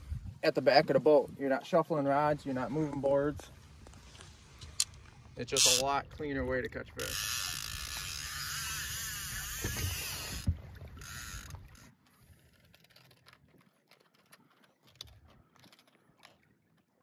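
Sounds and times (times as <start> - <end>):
faint clicks and handling: 3.8 - 5.9, 11.0 - 16.9
fishing reel whirring: 5.6 - 5.9, 7.0 - 13.1.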